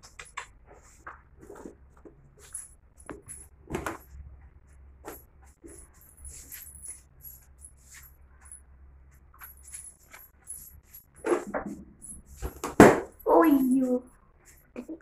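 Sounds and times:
small bell jingling in toy ball: 5.6s - 8.7s, 9.3s - 11.2s.

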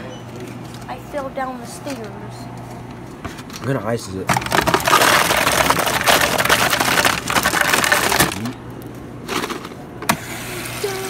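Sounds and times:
ice rattling into plastic cup: 4.3s - 8.6s.

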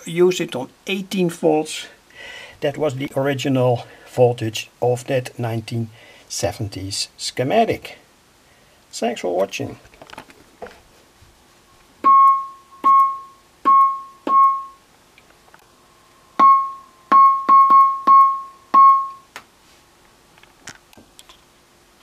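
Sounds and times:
electronic wood-block knocks: 16.4s - 19.2s.

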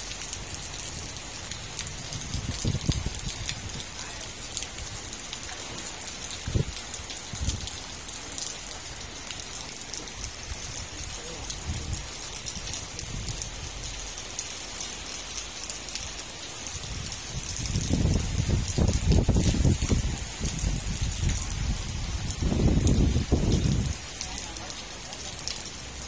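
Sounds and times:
rain pattering on roofs: 0.0s - 26.0s
water dripping off roof edge: 0.0s - 26.0s.

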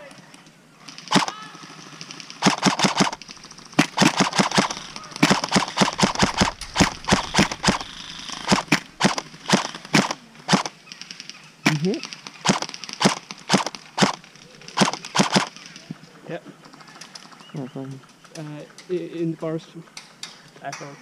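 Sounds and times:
airsoft rifle firing: 0.8s - 15.9s.

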